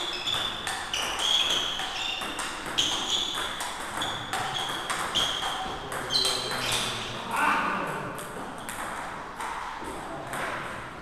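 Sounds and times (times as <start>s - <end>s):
table tennis ball clicking: 0.3s - 6.1s.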